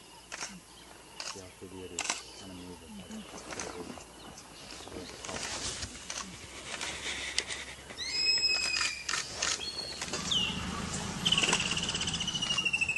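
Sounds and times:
faint rustling and scuffling: 0:03.1 - 0:08.0.

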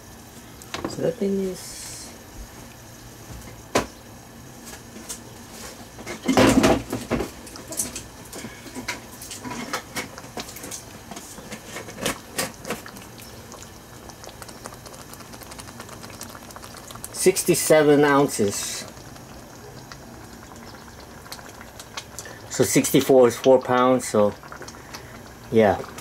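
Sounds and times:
sauce bubbles popping in a pan: 0:06.4 - 0:26.0.

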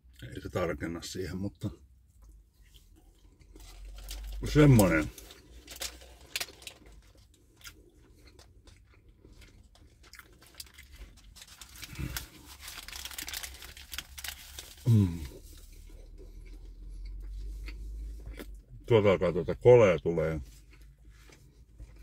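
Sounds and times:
paper wrapper crinkling: 0:03.6 - 0:07.3, 0:09.7 - 0:15.6
person chewing and biting: 0:05.2 - 0:18.8.

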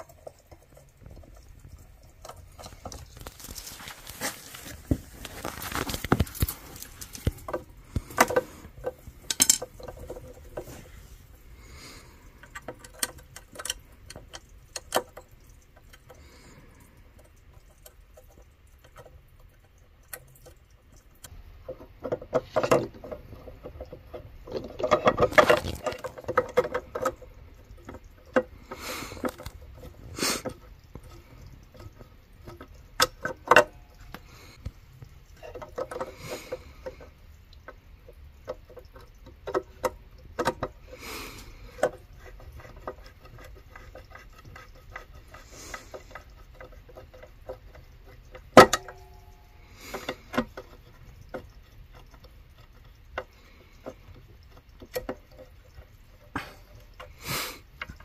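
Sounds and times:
hand tools and metal parts rattling: 0:00.0 - 0:16.2, 0:21.6 - 0:34.6.

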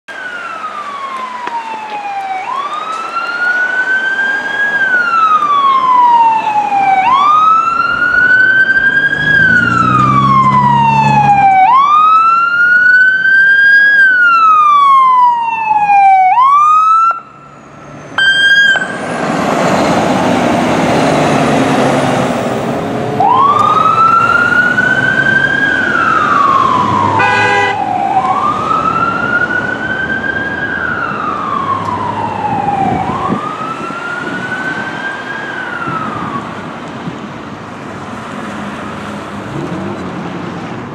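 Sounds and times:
fire engine siren wailing: 0:00.1 - 0:39.8
siren fast yelp: 0:18.2 - 0:19.0
loud rough horn blasting: 0:27.0 - 0:27.9.

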